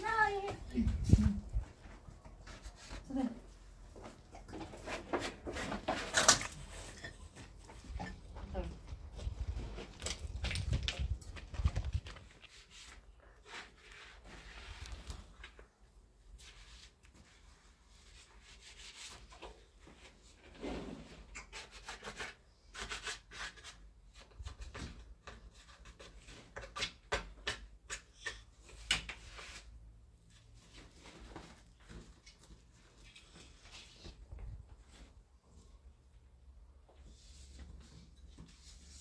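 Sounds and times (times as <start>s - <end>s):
wood rubbing and scraping: 0.0s - 15.4s.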